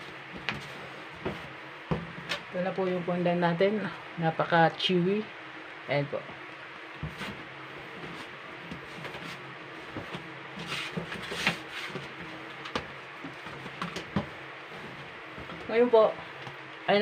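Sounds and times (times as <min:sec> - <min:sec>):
low steady hum: 0:00.0 - 0:17.0
dough kneading knocks and squishes: 0:00.1 - 0:02.5, 0:09.9 - 0:15.8.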